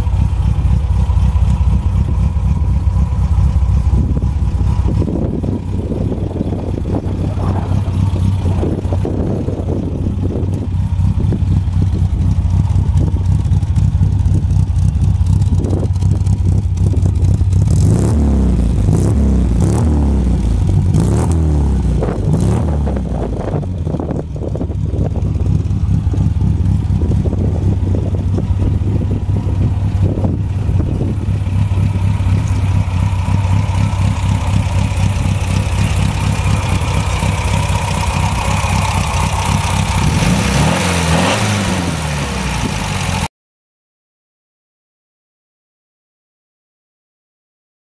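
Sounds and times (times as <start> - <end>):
car engine idling: 0.0 - 19.6, 21.8 - 43.3
engine throttle blips: 0.0 - 43.3.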